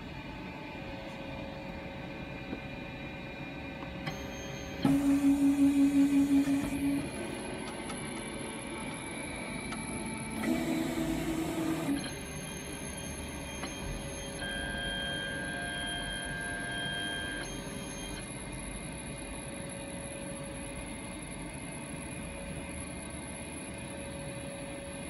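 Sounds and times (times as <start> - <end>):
printer fan hum: 0.0 - 21.5.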